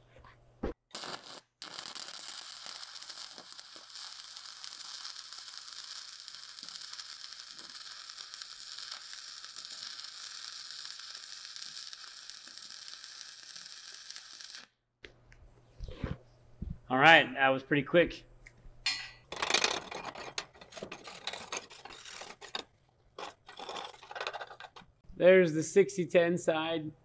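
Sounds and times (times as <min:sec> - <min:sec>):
welding arc crackling and sizzling: 0:00.9 - 0:14.8, 0:19.4 - 0:22.6, 0:23.2 - 0:25.0.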